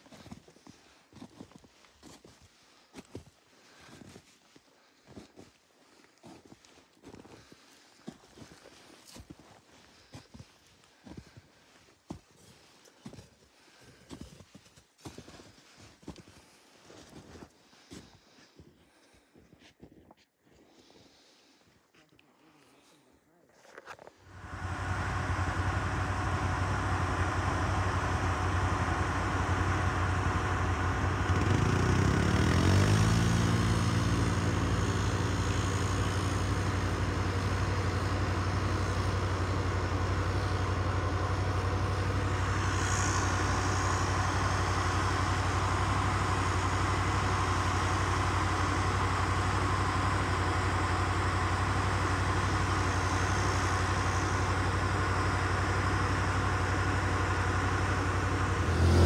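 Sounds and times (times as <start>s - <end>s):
atv engine droning: 24.3s - 59.0s.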